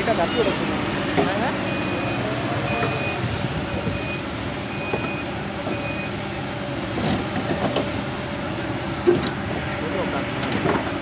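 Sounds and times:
excavator diesel engine running: 0.0s - 11.0s
short high alarm beeps: 1.6s - 6.2s.

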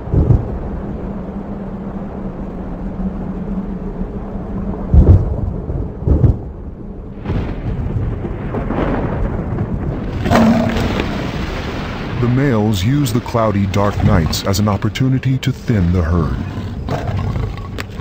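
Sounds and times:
rolling thunder rumbles: 0.0s - 18.0s
thunder claps: 0.0s - 18.0s.

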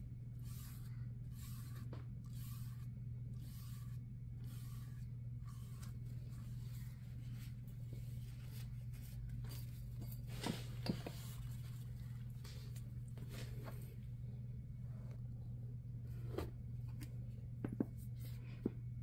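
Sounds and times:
steady low hum: 0.0s - 19.0s
paintbrush swishing: 0.3s - 9.2s.

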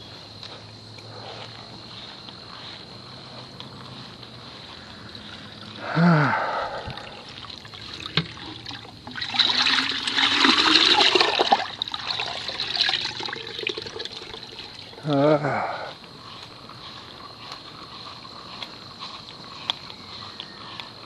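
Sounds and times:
pitcher filling in bucket of water: 6.7s - 15.0s.

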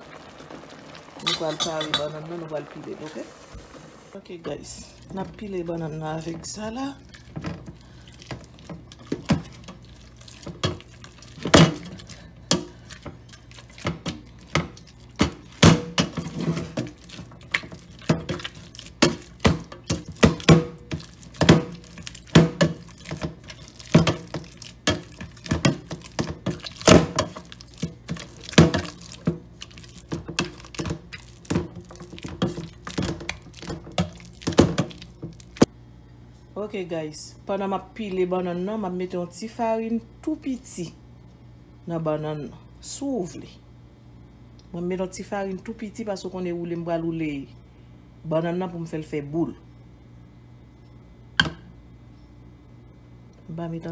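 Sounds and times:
masher thunking in metal pot: 10.5s - 13.2s, 13.8s - 29.4s, 30.0s - 35.7s.

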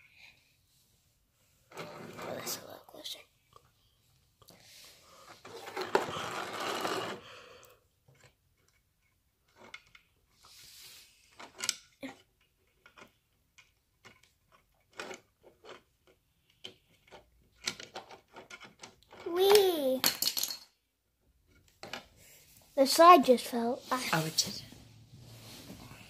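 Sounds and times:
plastic toy pieces clicking: 11.4s - 20.7s
rustling near microphone: 22.3s - 26.0s.

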